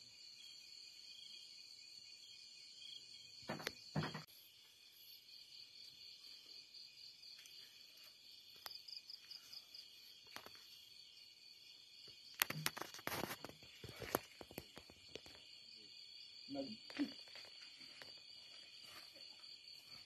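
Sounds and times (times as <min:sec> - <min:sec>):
crickets chirring: 0:00.0 - 0:20.0
sharp clicks and rustles: 0:12.3 - 0:15.4.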